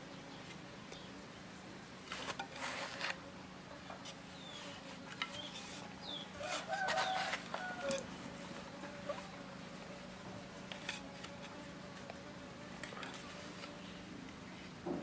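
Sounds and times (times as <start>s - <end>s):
rooster crowing: 6.4s - 8.1s.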